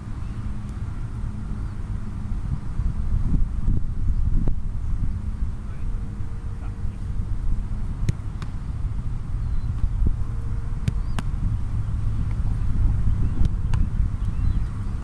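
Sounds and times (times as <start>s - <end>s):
wind rumbling on microphone: 0.0s - 15.0s
soccer ball thuds: 8.0s - 8.6s, 10.8s - 11.4s, 13.3s - 14.0s.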